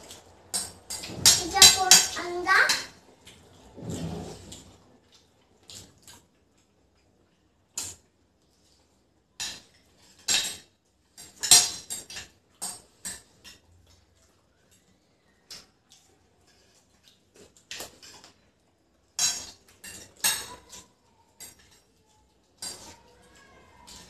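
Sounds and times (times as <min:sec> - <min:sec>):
cutlery clinking on plates: 0:09.4 - 0:14.0, 0:19.1 - 0:24.0.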